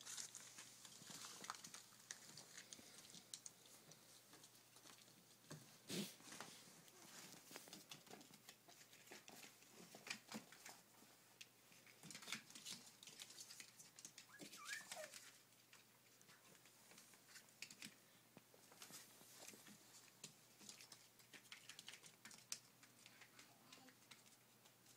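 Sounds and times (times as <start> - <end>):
puppy paws on plastic sheet: 0.0 - 24.9
puppy whimper: 14.2 - 15.4.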